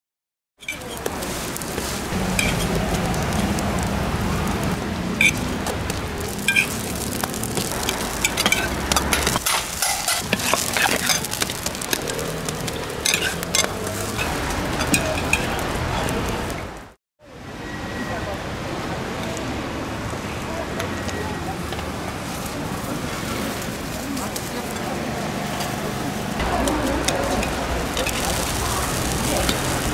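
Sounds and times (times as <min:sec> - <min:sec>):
pancakes sizzling on a griddle: 0:00.7 - 0:15.8, 0:26.4 - 0:29.9
metal lids clinking on griddle: 0:08.2 - 0:12.1, 0:12.8 - 0:15.5.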